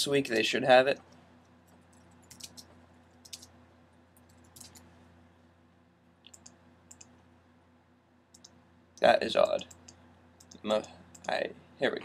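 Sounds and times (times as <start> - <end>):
keyboard typing: 1.7 - 3.6, 4.2 - 4.9, 6.3 - 7.2, 8.3 - 8.6.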